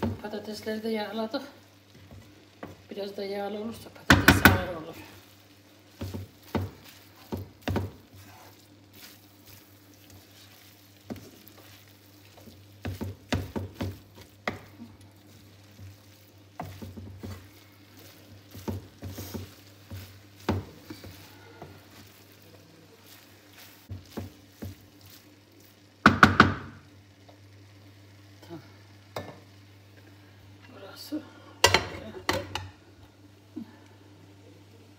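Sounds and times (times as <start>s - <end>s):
light sizzling: 0.0s - 34.9s
spatula scraping meat in pan: 3.9s - 25.9s
knocks against pan: 4.1s - 4.6s, 26.0s - 26.7s.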